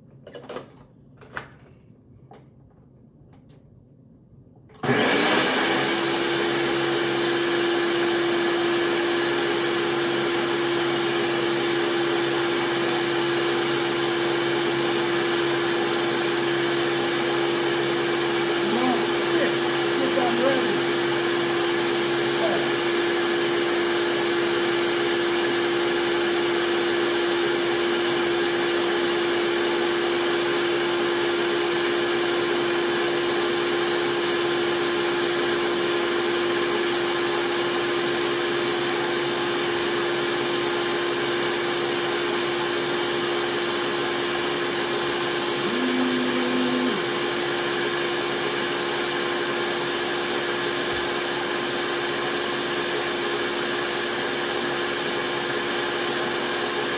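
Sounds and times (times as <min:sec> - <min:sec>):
electric motor running: 0:12.4 - 0:25.6, 0:45.3 - 0:47.9.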